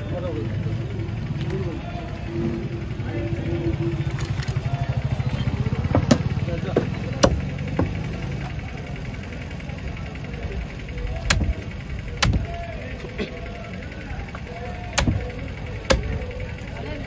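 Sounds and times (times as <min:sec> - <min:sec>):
low background rumble: 0:00.0 - 0:17.0
cleaver chopping fish on wooden block: 0:05.9 - 0:08.0, 0:11.3 - 0:11.6, 0:12.2 - 0:12.5, 0:15.0 - 0:15.2, 0:15.9 - 0:16.2.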